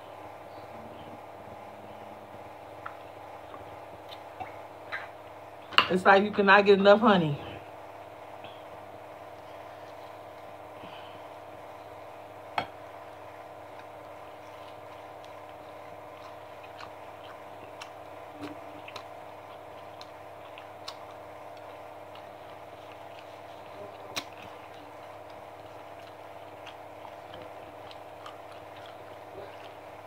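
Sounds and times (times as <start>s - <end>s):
chewing and mouth clicks: 2.7s - 5.2s, 12.6s - 30.0s
crunchy snaps: 13.6s - 30.0s.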